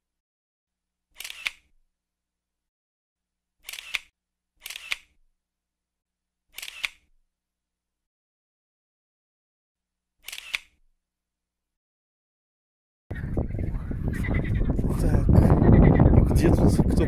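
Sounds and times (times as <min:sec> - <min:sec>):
camera shutter clicking: 0:01.2 - 0:01.7, 0:03.6 - 0:05.2, 0:06.5 - 0:07.1, 0:10.2 - 0:10.8.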